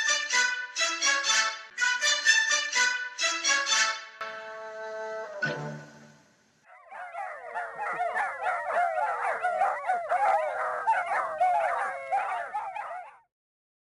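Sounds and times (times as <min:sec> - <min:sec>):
puppies squeaking and whimpering: 0:06.7 - 0:13.1.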